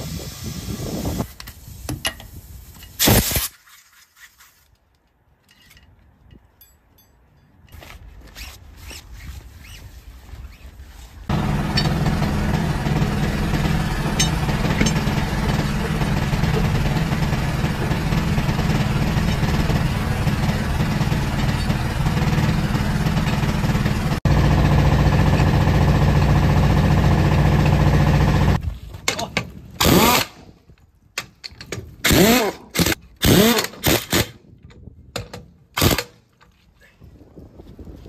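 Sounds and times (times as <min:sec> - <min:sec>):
motor humming: 0:11.3 - 0:28.1.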